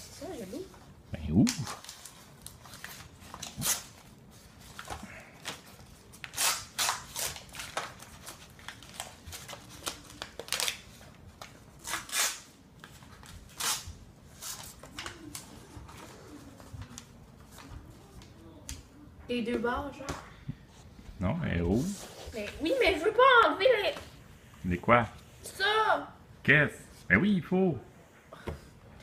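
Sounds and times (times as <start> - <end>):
paper crinkling and tearing: 1.5 - 18.2.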